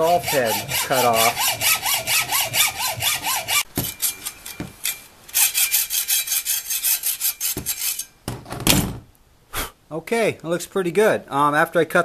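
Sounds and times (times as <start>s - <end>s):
hacksaw cutting metal: 0.0s - 8.1s.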